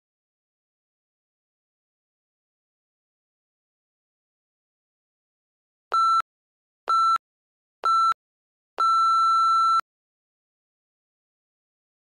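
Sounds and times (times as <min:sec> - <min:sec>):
long timer beep: 0:08.8 - 0:09.8.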